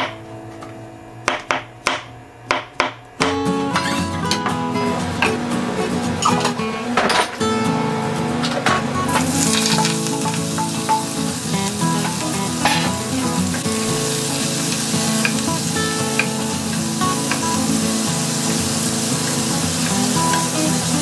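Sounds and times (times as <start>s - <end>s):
vegetables sizzling in hot oil: 9.1s - 21.0s.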